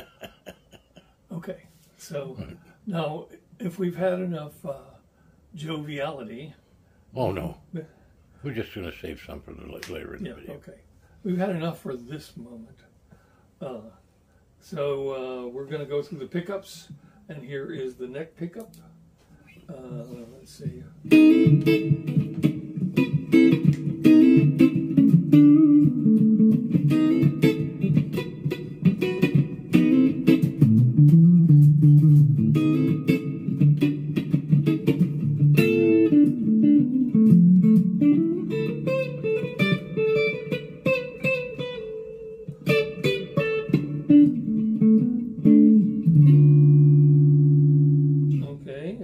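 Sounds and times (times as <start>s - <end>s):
electric guitar notes and chords: 21.0s - 48.5s.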